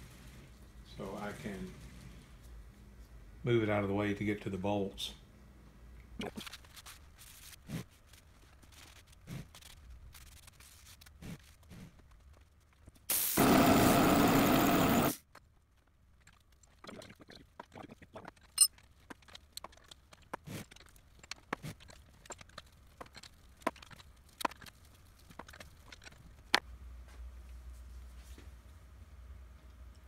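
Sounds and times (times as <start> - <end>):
compressed air blow gun blasting: 13.1 - 15.2.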